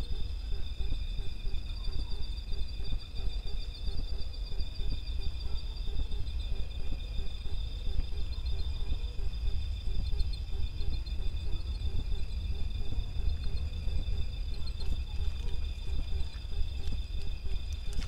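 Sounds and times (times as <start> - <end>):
constant low rumble: 0.0 - 18.0
crickets trilling: 0.0 - 18.0
low repeating insect note: 0.0 - 18.0.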